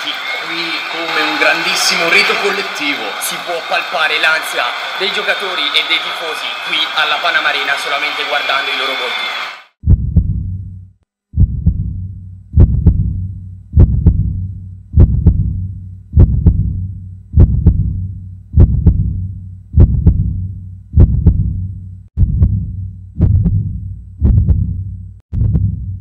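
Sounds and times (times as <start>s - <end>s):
heartbeat double thumps: 9.8s - 26.0s.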